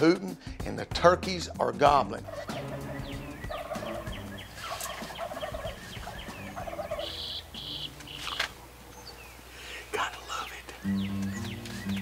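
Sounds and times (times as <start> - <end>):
turkeys gobbling: 2.0 - 12.0
small birds chirping: 2.2 - 12.0
owl hooter call: 2.3 - 8.4.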